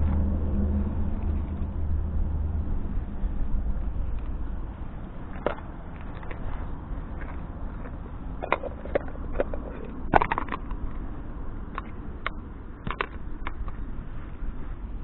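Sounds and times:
low steady rumble: 0.0 - 15.0
dry grass rustling: 3.8 - 11.2.

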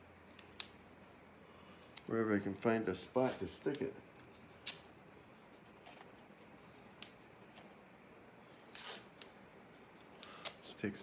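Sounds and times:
tape ripping: 8.6 - 9.3.

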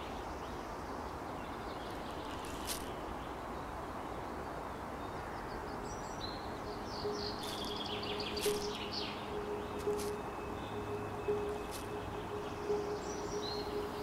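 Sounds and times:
steady background hiss: 0.0 - 14.0
birds chirping: 5.1 - 14.0.

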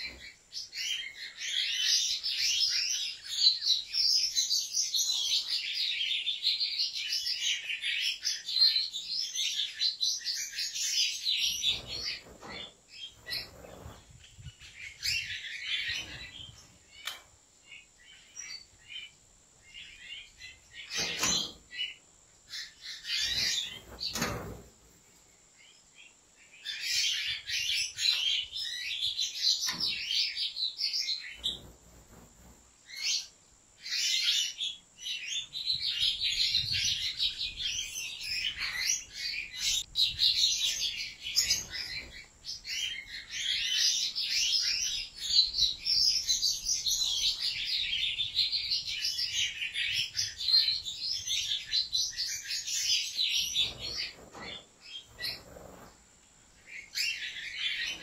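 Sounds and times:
goldfinches twittering song: 0.0 - 24.4.

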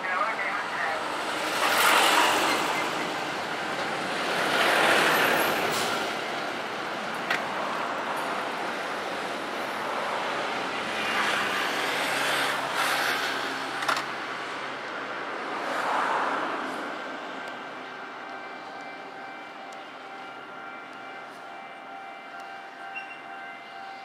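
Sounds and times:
traffic passing close by: 0.1 - 19.2.

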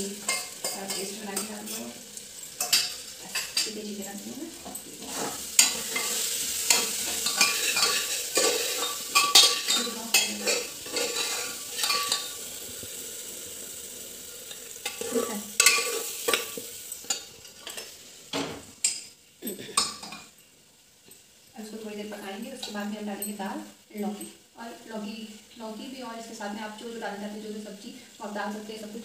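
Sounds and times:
spices sizzling: 0.0 - 29.0
metal ladle scraping a pot: 5.0 - 12.4.

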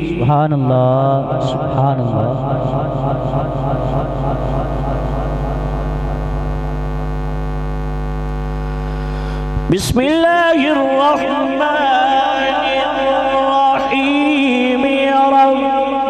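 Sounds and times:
man reciting melodically: 0.0 - 5.2, 9.7 - 16.0
mains hum: 1.6 - 11.0.

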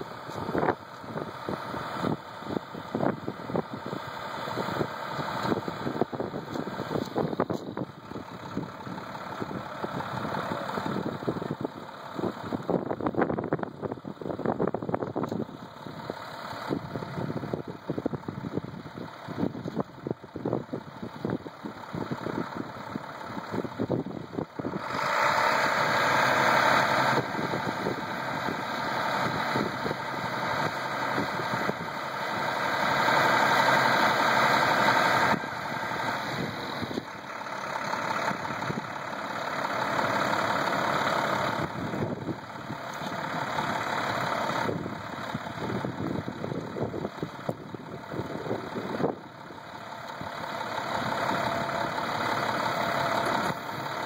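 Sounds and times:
truck engine running: 0.0 - 54.0.

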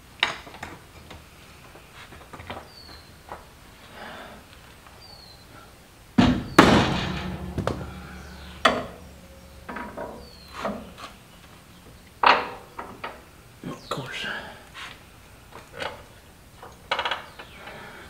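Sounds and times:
metal tools clanking on steel frame: 6.2 - 11.2
loud ringing metal clangs: 6.2 - 11.4.

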